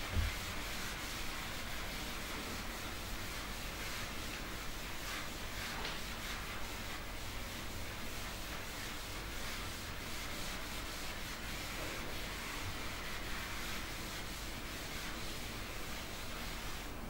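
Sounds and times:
writing strokes on a board: 0.0s - 17.0s.

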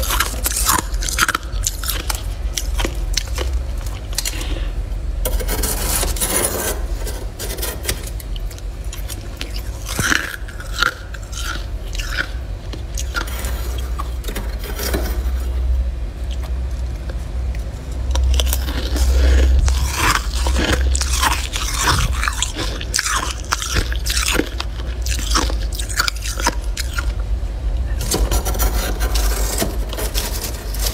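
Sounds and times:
frost being chewed crunching: 0.0s - 4.7s, 8.1s - 14.3s, 16.2s - 28.0s
steady low hum: 0.0s - 30.9s.

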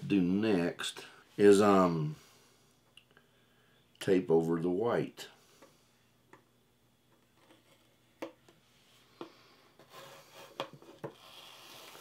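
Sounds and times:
tape peeling off board: 11.2s - 12.0s.

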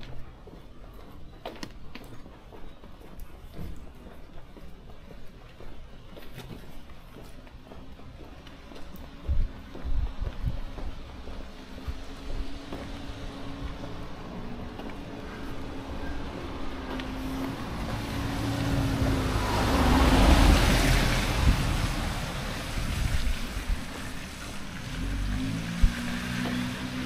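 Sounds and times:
low engine hum: 8.0s - 27.0s
motor vehicle passing: 11.0s - 27.0s.

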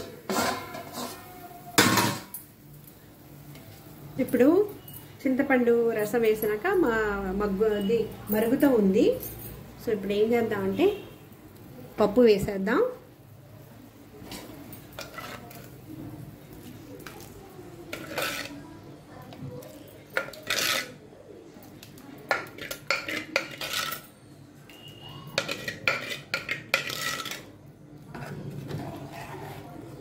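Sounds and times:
metal spoon clinking on pots: 0.0s - 3.0s, 14.2s - 15.8s, 17.0s - 18.6s, 19.6s - 21.0s, 21.9s - 28.4s.

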